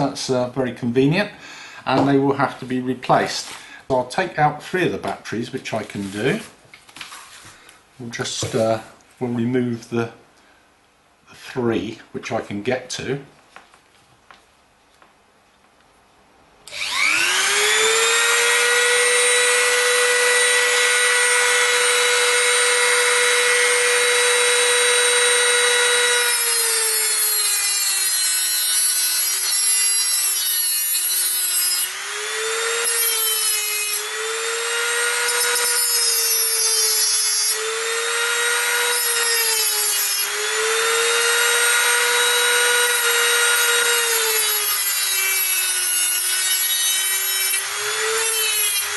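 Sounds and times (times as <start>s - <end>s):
rotary tool cutting metal: 16.7s - 48.9s.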